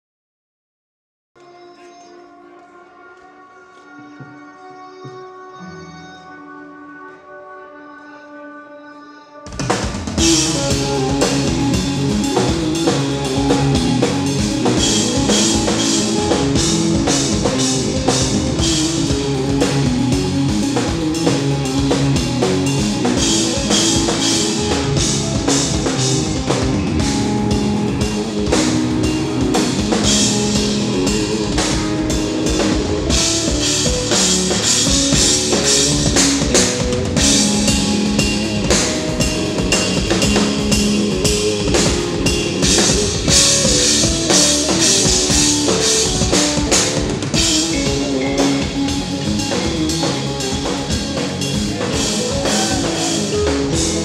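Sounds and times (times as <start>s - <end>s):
distorted electric guitars: 9.4s - 54.0s
drum kit with cymbals: 9.5s - 54.0s.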